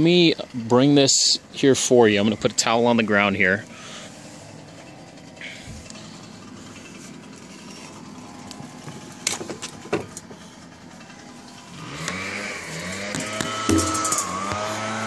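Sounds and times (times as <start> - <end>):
power equipment running: 0.2 - 15.0
motor rising and falling in pitch: 11.2 - 15.0
sharp knocks: 13.0 - 14.6.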